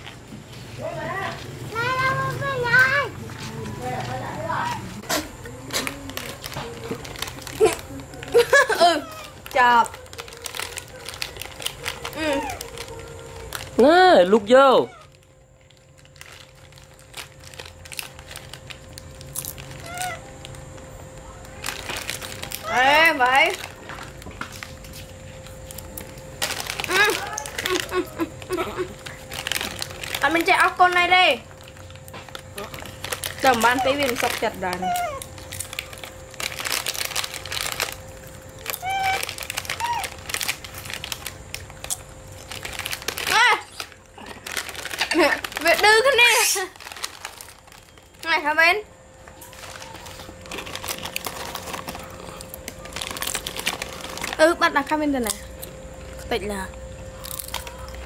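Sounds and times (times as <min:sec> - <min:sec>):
faint steady hum: 0:00.0 - 0:58.0
foil snack packet crinkling: 0:00.0 - 0:58.0
baby monkey squeaks: 0:34.8 - 0:35.2.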